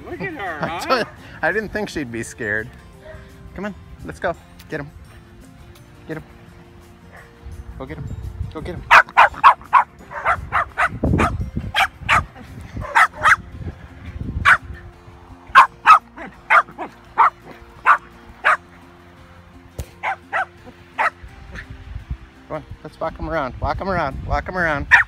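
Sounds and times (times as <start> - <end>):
dog barking sharply: 8.9 - 13.4, 15.5 - 18.6, 20.0 - 21.2.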